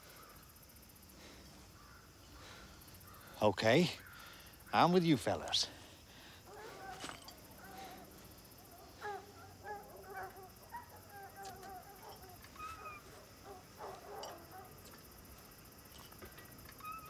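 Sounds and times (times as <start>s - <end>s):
faint animal cries: 6.5s - 14.8s, 16.8s - 17.0s.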